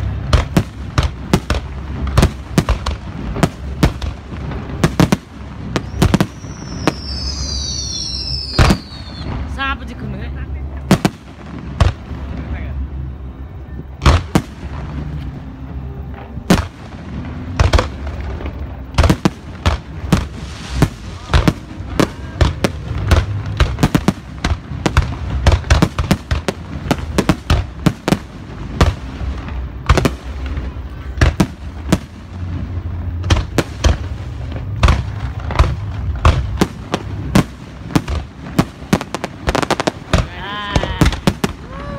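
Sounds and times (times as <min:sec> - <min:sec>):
fireworks bangs: 0:00.0 - 0:41.9.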